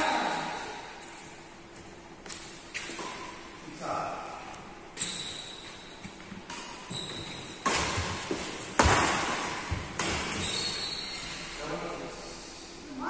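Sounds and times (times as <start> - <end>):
rackets striking shuttlecock: 6.4 - 10.7
brief high squeak: 10.4 - 11.4.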